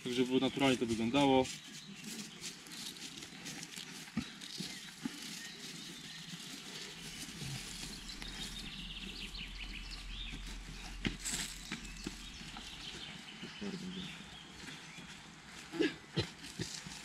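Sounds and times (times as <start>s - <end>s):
hands rustling through dry leaves: 0.0s - 17.0s.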